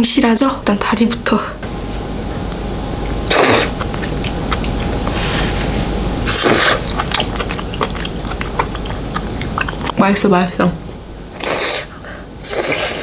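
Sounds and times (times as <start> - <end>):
wet mouth clicks: 3.3 - 5.1, 6.3 - 10.0
loud slurps: 3.3 - 5.6, 6.3 - 9.9, 11.3 - 13.0.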